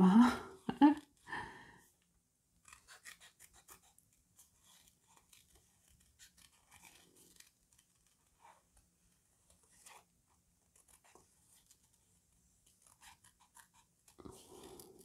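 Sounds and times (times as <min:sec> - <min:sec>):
scissors snipping paper: 0:02.6 - 0:08.6, 0:10.7 - 0:11.9, 0:12.7 - 0:15.0
paper rustling: 0:02.6 - 0:15.0.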